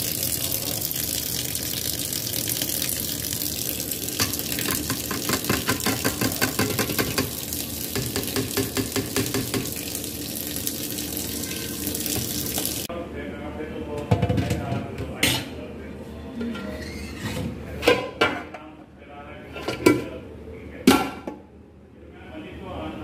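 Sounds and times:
tap water splashing into sink: 0:00.0 - 0:12.9
colander knocking on pot: 0:04.2 - 0:09.8.

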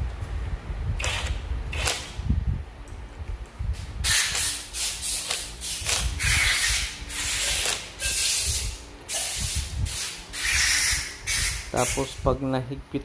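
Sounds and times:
cordless impact driver running: 0:01.0 - 0:02.2.

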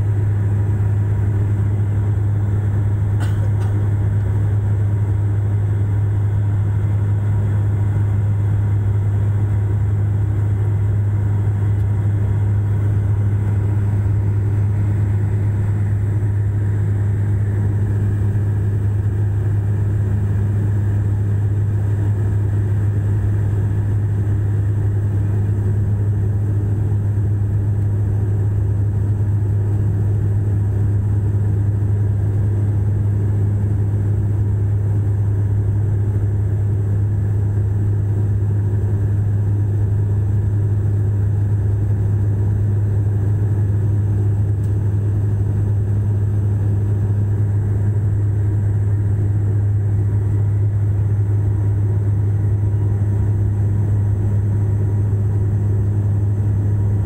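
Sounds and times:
turboprop engine drone in cabin: 0:00.0 - 0:57.0.

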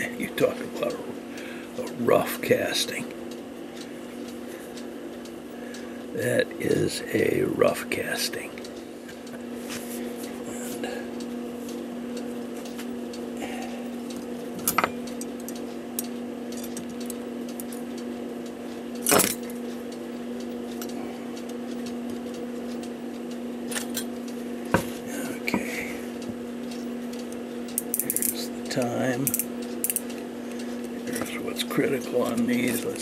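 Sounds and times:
steady low hum: 0:00.0 - 0:33.0
clock parts clicking and clinking: 0:14.1 - 0:18.0, 0:19.0 - 0:19.8, 0:26.6 - 0:33.0.

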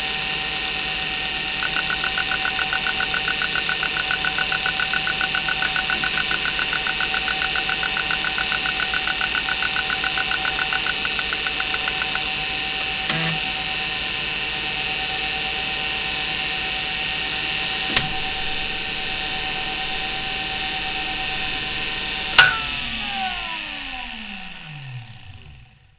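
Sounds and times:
hard drive spindle whine: 0:00.0 - 0:25.9
hard drive heads ticking: 0:01.4 - 0:12.4, 0:18.0 - 0:24.6
hard drive clicks: 0:01.6 - 0:13.4.

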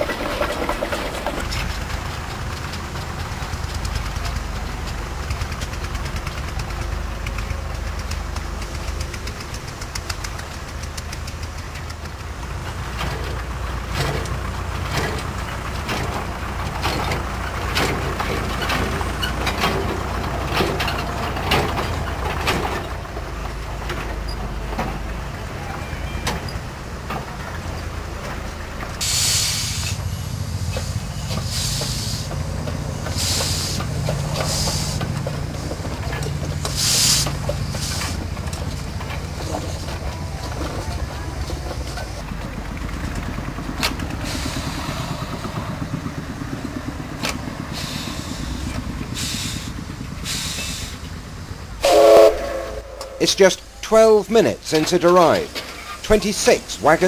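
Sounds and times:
wagons rumbling on rails: 0:00.0 - 0:57.0
wheels clanking over rail joints: 0:00.0 - 0:57.0
steam hissing: 0:29.0 - 0:42.2, 0:44.1 - 0:57.0.

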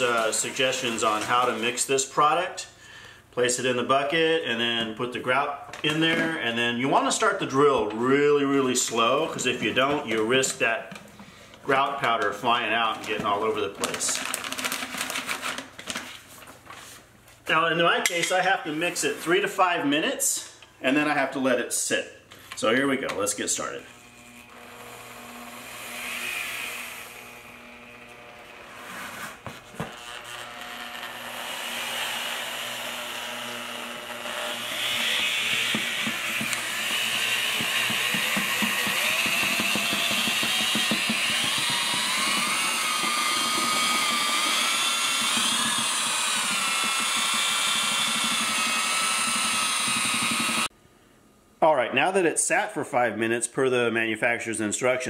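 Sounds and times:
drill motor whining: 0:23.9 - 0:28.8, 0:29.8 - 0:50.7.

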